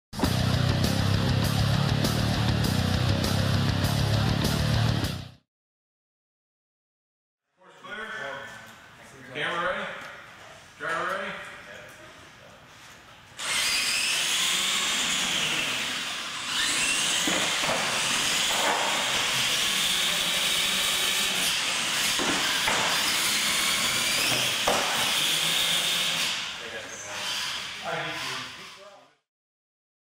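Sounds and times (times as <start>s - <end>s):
toy truck electric motors whining: 13.4s - 29.0s.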